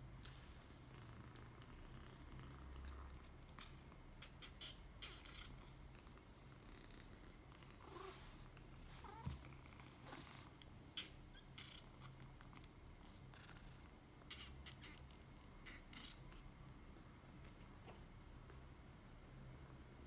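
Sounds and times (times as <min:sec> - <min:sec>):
kitten purring: 0:00.1 - 0:18.8.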